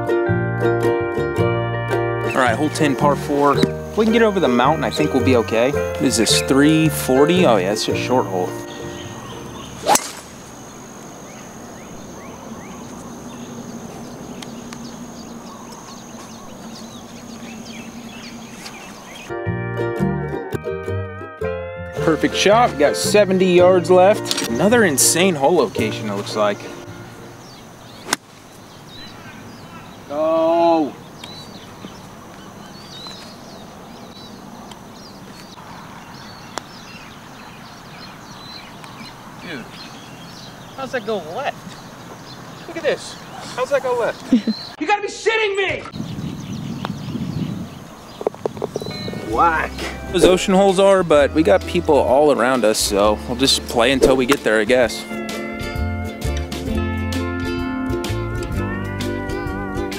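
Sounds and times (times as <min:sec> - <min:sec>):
steady outdoor hiss: 0:00.0 - 0:20.5, 0:22.0 - 0:59.9
high-pitched insect drone: 0:07.2 - 0:18.4
bird chirps: 0:08.3 - 0:19.3, 0:25.5 - 0:30.1, 0:30.8 - 0:44.8, 0:45.9 - 0:49.4
golf club striking ball: 0:09.5 - 0:10.8, 0:28.0 - 0:28.4, 0:54.0 - 0:54.5.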